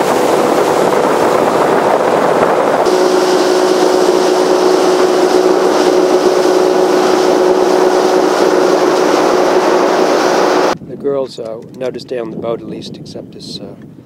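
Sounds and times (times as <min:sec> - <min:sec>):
outboard motor whine: 0:00.0 - 0:10.8
wind and water rushing: 0:00.0 - 0:10.8.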